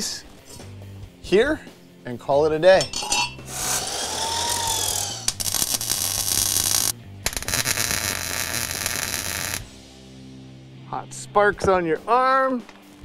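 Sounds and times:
welder crackling: 3.5s - 9.7s.

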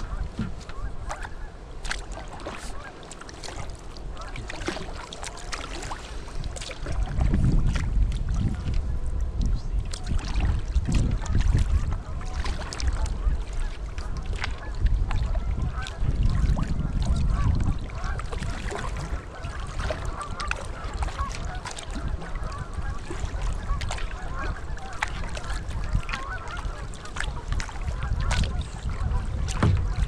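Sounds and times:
kayak paddle splashes: 0.0s - 30.0s
geese honking: 25.9s - 26.9s.

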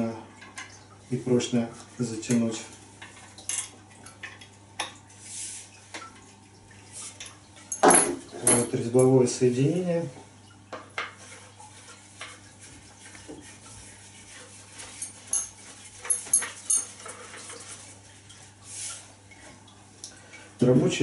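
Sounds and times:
soft rub: 5.1s - 5.9s, 11.2s - 16.1s, 16.9s - 19.6s.

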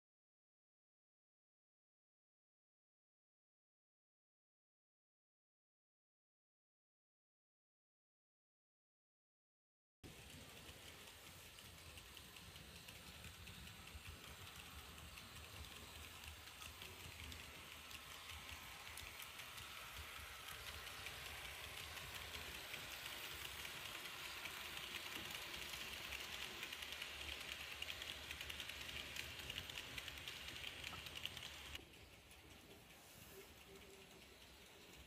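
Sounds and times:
model train wheels clicking on rails: 10.0s - 35.0s.

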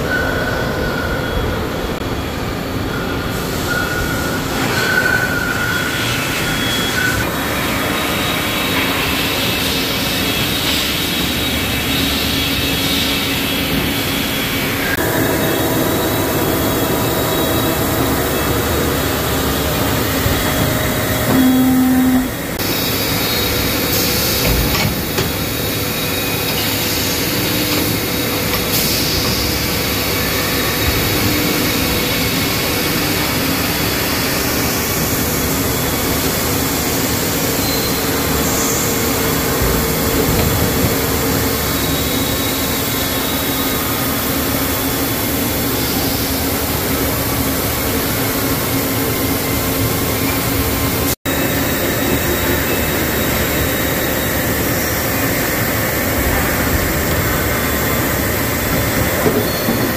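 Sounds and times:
milling machine cutting steel: 15.0s - 28.9s
short low tone: 21.2s - 22.6s.

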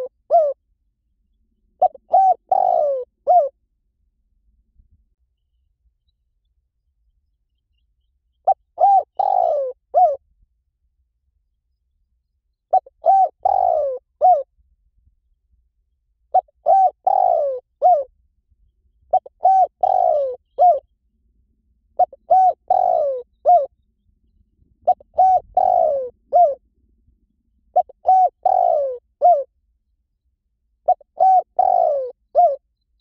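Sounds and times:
dove cooing: 0.0s - 0.6s, 1.8s - 3.6s, 8.4s - 10.2s, 12.7s - 14.5s, 16.3s - 18.1s, 19.1s - 20.9s, 22.0s - 23.7s, 24.8s - 26.6s, 27.7s - 29.5s, 30.8s - 32.6s.

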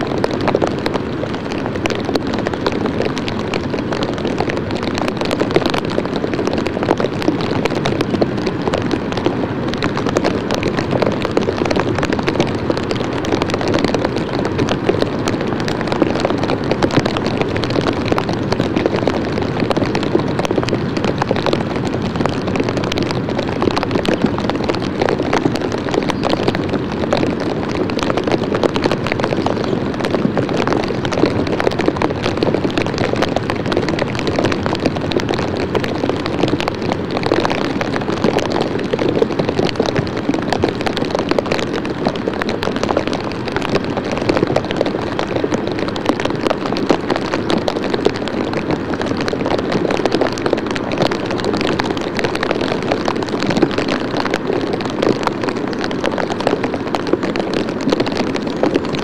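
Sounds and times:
dense crackling hiss: 0.0s - 59.0s.

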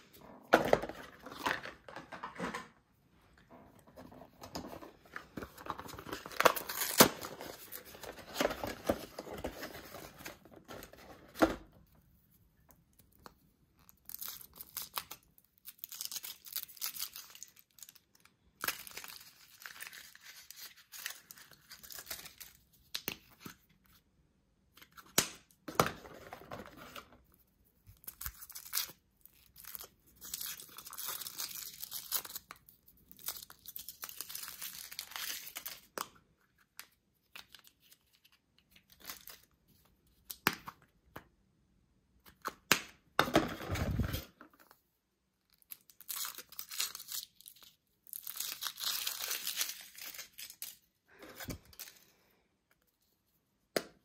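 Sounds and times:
foil wrappers crinkling and tearing: 45.6s - 50.9s.

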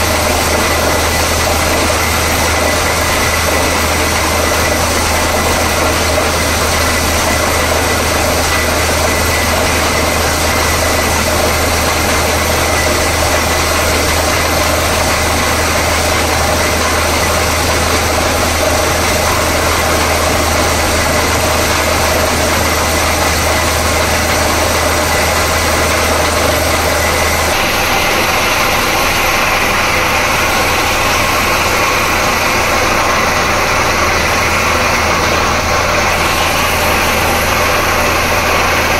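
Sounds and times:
drilling rig engine drone: 0.0s - 38.9s.

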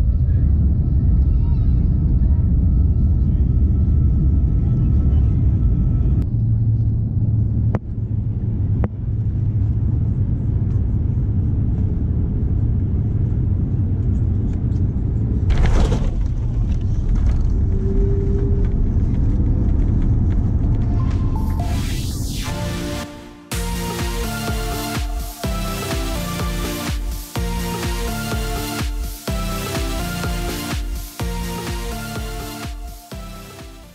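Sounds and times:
aircraft cabin engine rumble: 0.0s - 22.2s
loud rush of noise: 15.5s - 33.9s.

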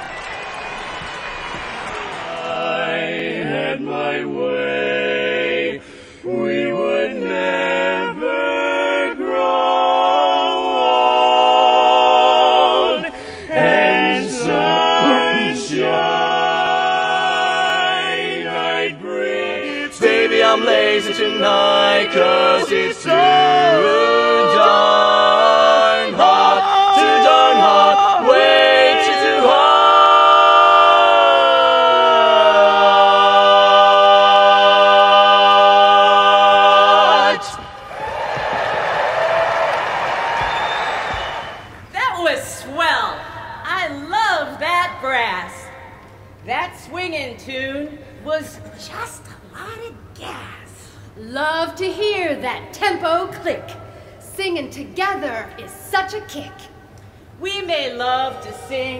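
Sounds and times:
men singing a cappella harmony: 2.3s - 37.8s
man clearing throat: 15.0s - 15.6s.

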